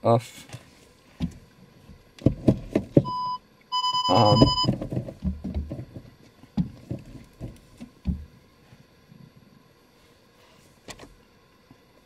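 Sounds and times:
parking sensor beeps: 3.0 - 4.8.

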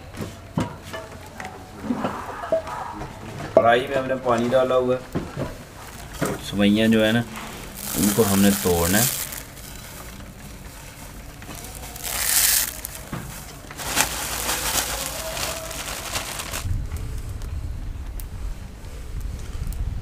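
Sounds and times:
dry noodles crackling and crunching: 5.7 - 16.7.

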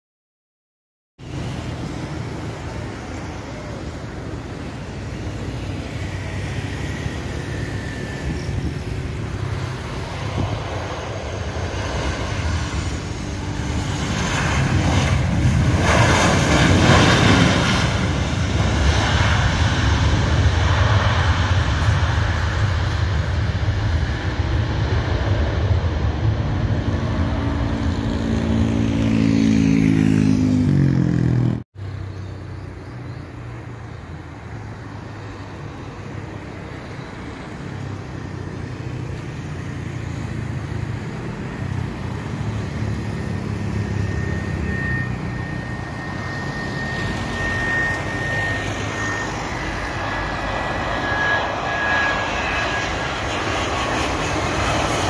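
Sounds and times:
jet airliner engine noise: 1.2 - 55.0.

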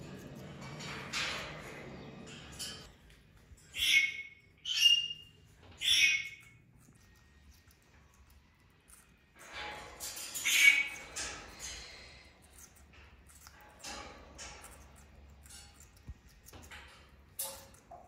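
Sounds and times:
parrot squawking: 3.7 - 6.6, 10.4 - 11.0.

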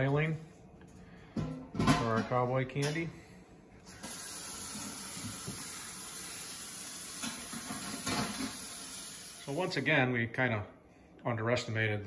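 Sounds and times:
water hissing: 3.9 - 9.8.

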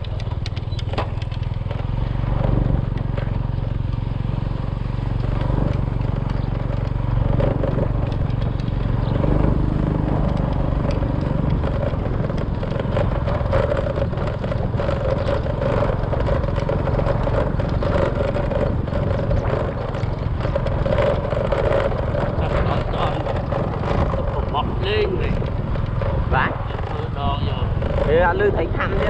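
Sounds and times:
small motorcycle engine running: 0.0 - 29.0.

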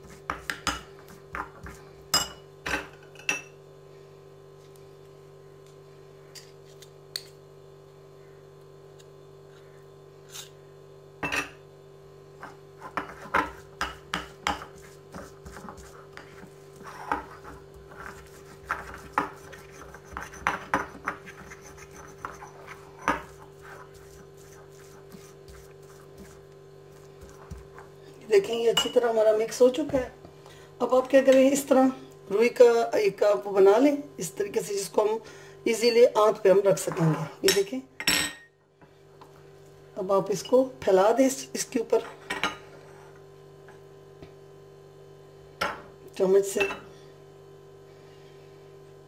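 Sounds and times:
spoon stirring and scraping paste: 0.0 - 2.4, 12.4 - 29.1.

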